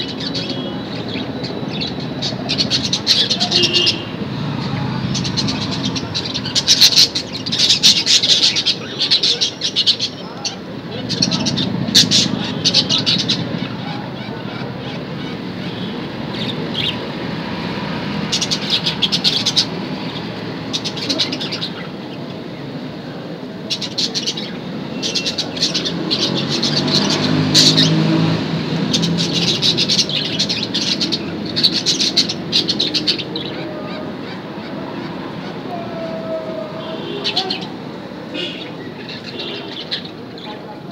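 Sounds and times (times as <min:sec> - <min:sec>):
budgerigars chattering: 0:00.0 - 0:17.2, 0:18.1 - 0:22.1, 0:23.6 - 0:28.1, 0:28.8 - 0:35.6.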